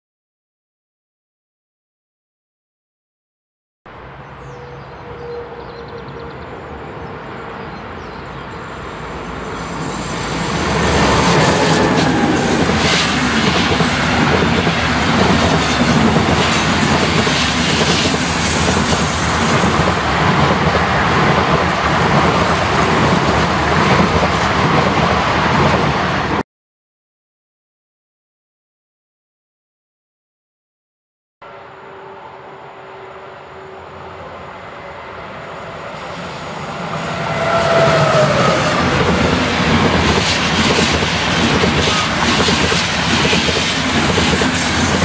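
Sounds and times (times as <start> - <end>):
electric train passing: 4.0 - 26.4, 31.4 - 45.0.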